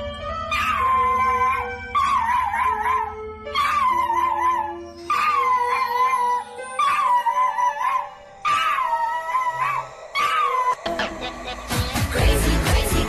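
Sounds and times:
dog howling: 0.5 - 10.9.

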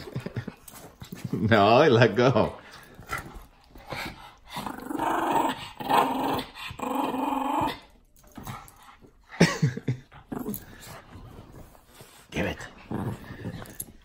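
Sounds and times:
small dog growling: 4.4 - 7.9.

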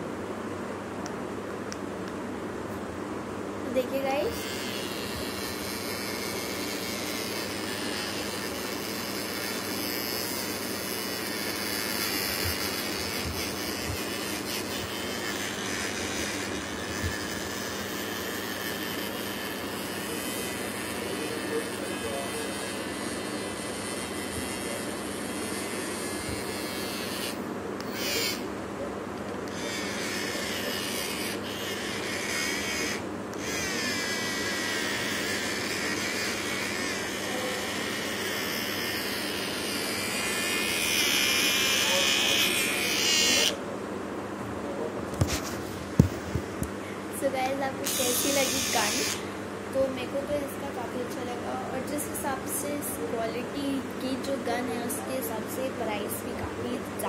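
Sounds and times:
toy fan motor whirring: 3.8 - 28.5, 29.5 - 43.6, 47.2 - 49.2.

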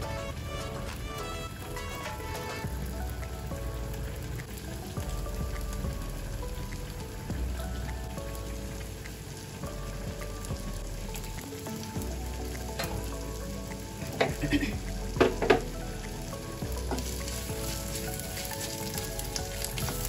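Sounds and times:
loud spurts of sizzle: 0.0 - 20.0
spices sizzling in hot oil: 0.0 - 20.0
wooden spoon stirring: 16.7 - 20.0.

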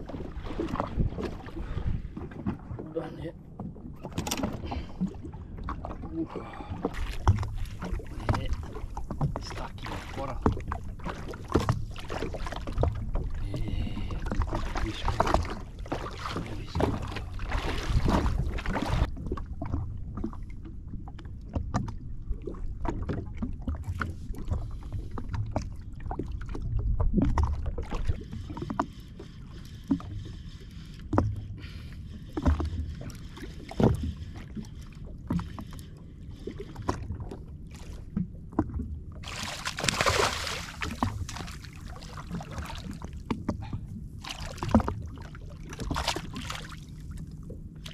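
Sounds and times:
waves lapping against hull: 0.0 - 47.9
fish splashing: 39.2 - 43.1.

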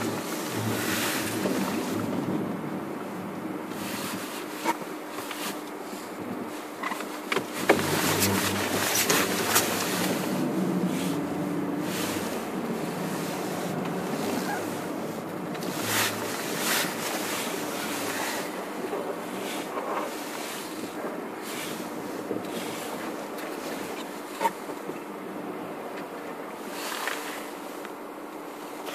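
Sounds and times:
low drone: 0.0 - 4.0, 7.6 - 19.8
wind buffeting microphone: 0.0 - 5.1, 7.4 - 24.0.

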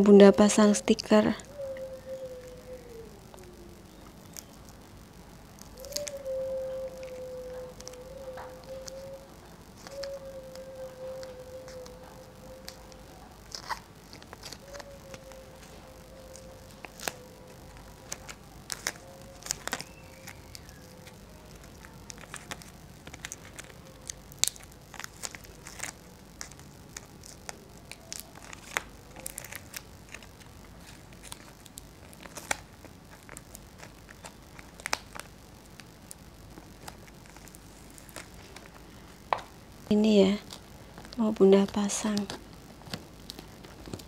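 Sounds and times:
sticker backing paper peeling: 5.5 - 39.4.

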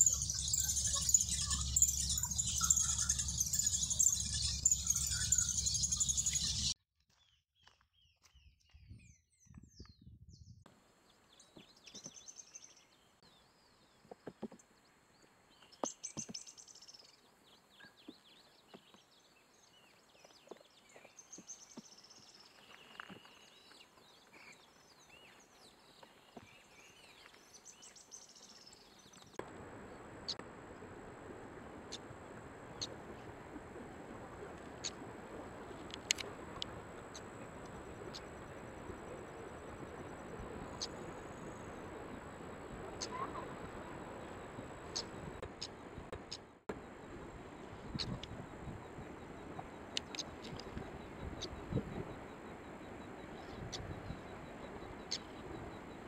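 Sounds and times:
bird singing high trills: 0.0 - 6.8, 43.0 - 45.3.

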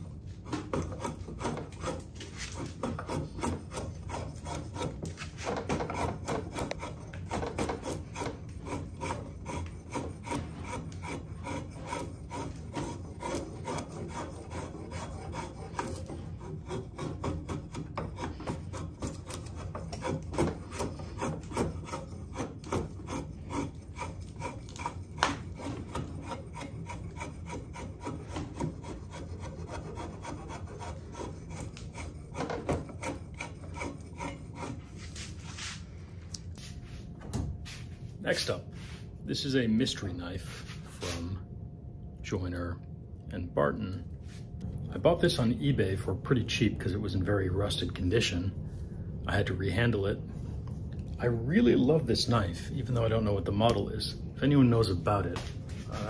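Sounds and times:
drawknife rasping wood: 0.0 - 35.9.

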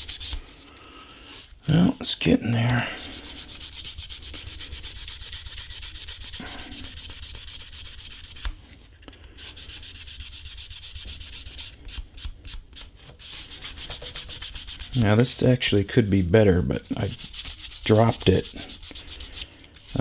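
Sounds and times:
sandpaper scratching on leather: 0.0 - 0.4, 3.0 - 8.5, 9.4 - 15.0, 17.0 - 20.0.

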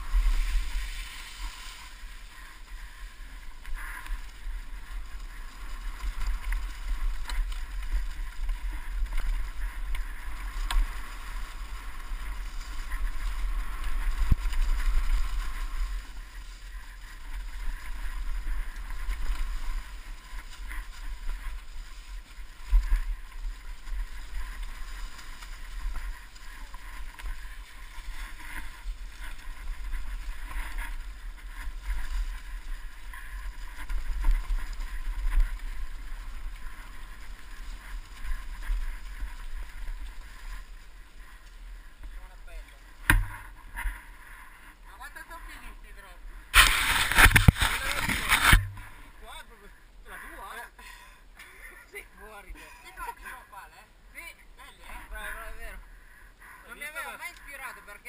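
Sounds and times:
bike tyres on dry leaves: 0.0 - 58.0
sharp knocks from bumps: 43.0 - 43.5.

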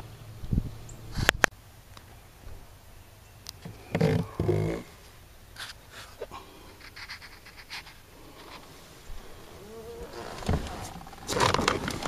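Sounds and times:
rubbing and scraping on microphone: 3.9 - 4.9, 5.6 - 12.0.

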